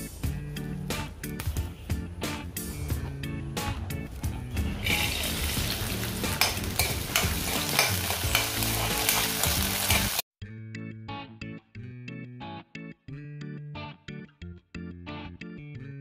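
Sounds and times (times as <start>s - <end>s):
background music: 0.0s - 16.0s
peanuts sizzling in hot oil: 4.8s - 10.2s
metal spoon scraping a pan: 6.3s - 10.2s.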